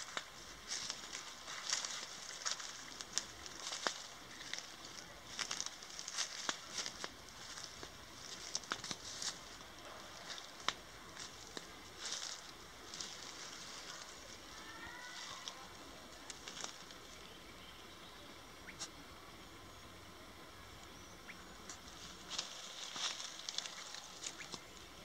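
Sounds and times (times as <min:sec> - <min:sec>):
twigs snapping: 0:00.0 - 0:14.1, 0:16.2 - 0:17.0, 0:21.6 - 0:24.8
footsteps through undergrowth: 0:00.0 - 0:17.4, 0:21.5 - 0:25.0.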